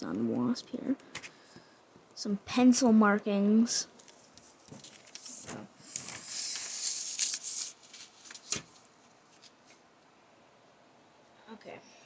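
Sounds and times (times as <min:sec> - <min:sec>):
paper rustling: 0:04.0 - 0:09.8.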